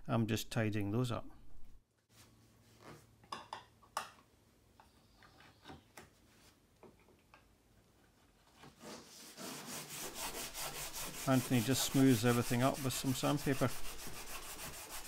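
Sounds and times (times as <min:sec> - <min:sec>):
chisel scraping wood: 0:08.8 - 0:15.0
sandpaper rubbing wood: 0:08.8 - 0:15.0.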